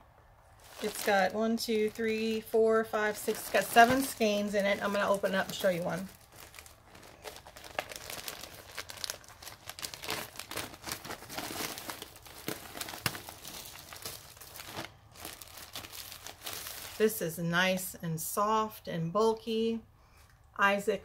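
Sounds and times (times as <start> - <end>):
packaging crinkling: 0.5 - 17.2.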